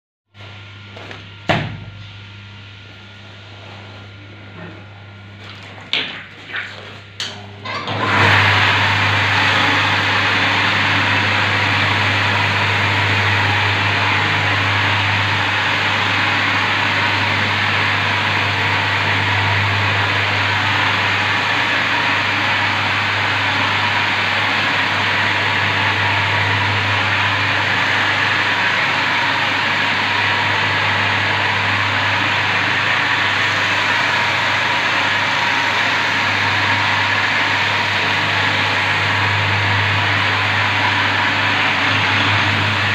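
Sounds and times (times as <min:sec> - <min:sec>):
polishing machine grinding wet stone: 0:07.6 - 0:42.9.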